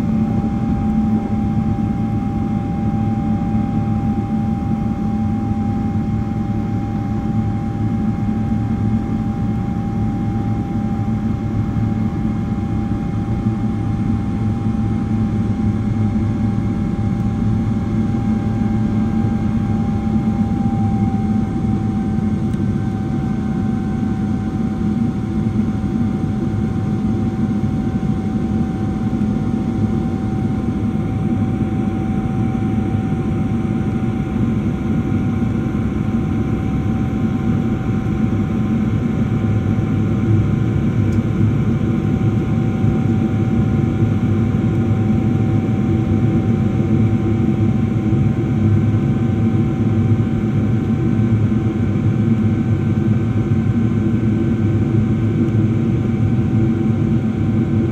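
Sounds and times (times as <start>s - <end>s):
faint steady whine: 0.0s - 57.9s
jet engines and airflow rushing: 15.4s - 57.9s.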